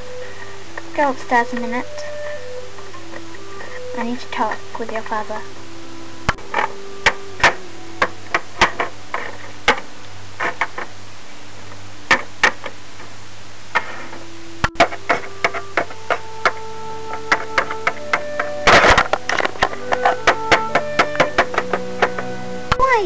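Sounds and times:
steady low hum: 0:00.0 - 0:22.8
plastic toy clicks and taps: 0:06.3 - 0:10.9, 0:12.1 - 0:12.8, 0:14.6 - 0:22.9.

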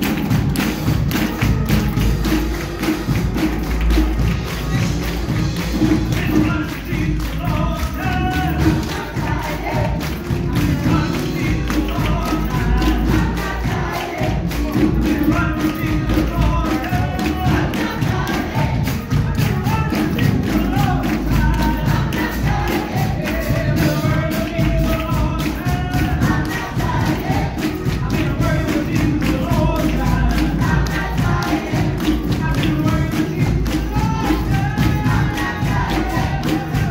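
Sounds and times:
bass accompaniment: 0:00.0 - 0:36.9
steady percussive beat: 0:00.0 - 0:36.9
choir singing a hymn: 0:04.2 - 0:36.9.

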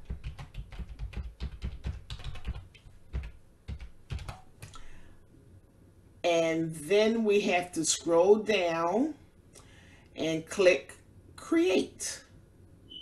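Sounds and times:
typing on computer keyboard: 0:00.0 - 0:04.8.

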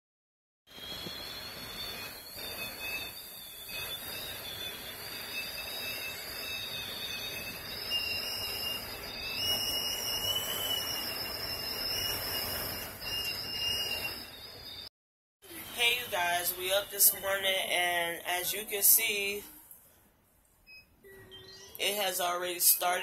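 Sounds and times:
wind whistling at a window: 0:00.7 - 0:14.8
steady rush of wind: 0:00.9 - 0:14.3.

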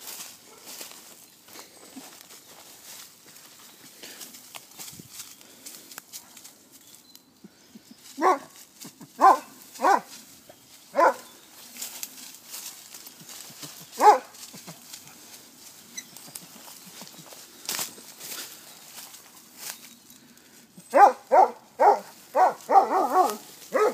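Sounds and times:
rustling of brush: 0:00.0 - 0:23.9
dog barking: 0:08.2 - 0:08.5, 0:09.2 - 0:10.1, 0:11.0 - 0:11.3, 0:14.0 - 0:14.4, 0:20.9 - 0:23.9.

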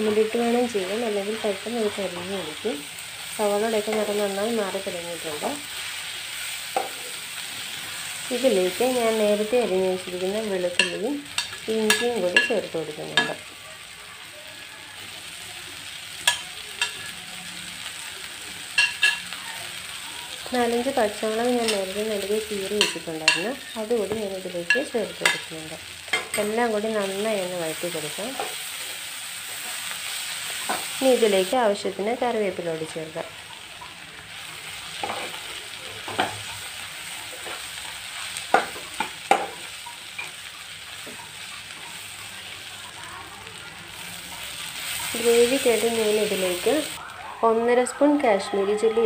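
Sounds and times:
onions sizzling in oil: 0:00.0 - 0:49.0
spoon knocking against pan: 0:10.8 - 0:13.4, 0:22.8 - 0:23.5, 0:38.5 - 0:40.4.

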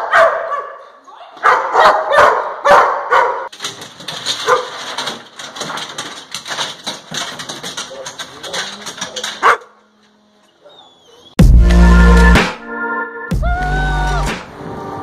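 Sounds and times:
dog barking: 0:00.0 - 0:03.5, 0:04.4 - 0:04.7, 0:09.4 - 0:09.8
scuffs clicks and knocks: 0:03.5 - 0:09.7.

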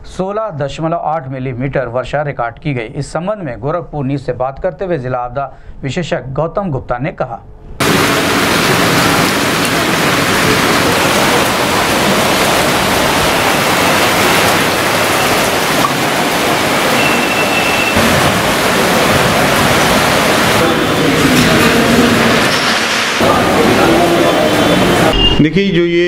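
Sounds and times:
steady rain hiss: 0:07.8 - 0:25.1.

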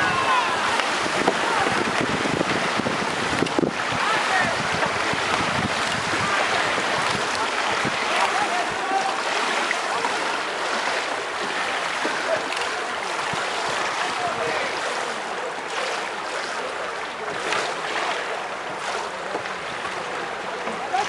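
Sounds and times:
distant shouts: 0:00.0 - 0:01.9, 0:06.0 - 0:10.3
paddles splashing pool water: 0:00.0 - 0:21.0.

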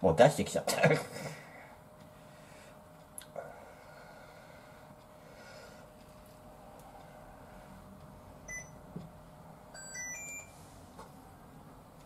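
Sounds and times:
cooktop control panel beeping: 0:08.5 - 0:08.8, 0:09.7 - 0:10.6.

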